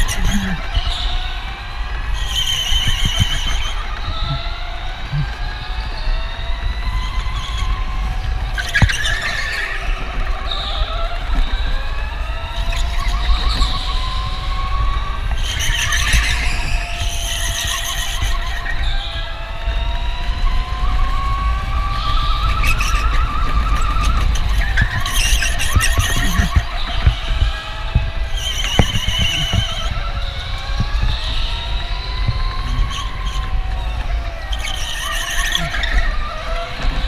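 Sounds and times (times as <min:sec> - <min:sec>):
tyre squeal: 0:00.0 - 0:05.4, 0:08.5 - 0:11.0, 0:12.5 - 0:19.3, 0:21.2 - 0:37.0
electric motor whine: 0:00.0 - 0:37.0.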